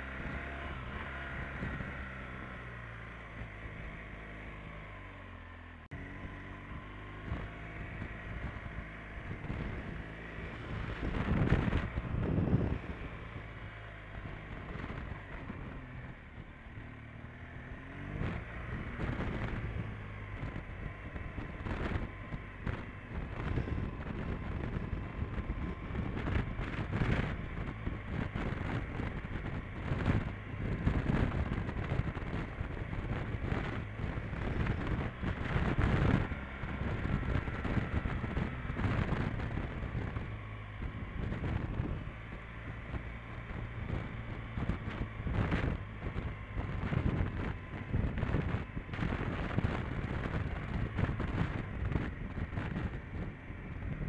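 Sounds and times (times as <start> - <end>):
motorcycle engine running: 0.0 - 54.0
wind buffeting microphone: 6.2 - 16.9, 17.5 - 54.0.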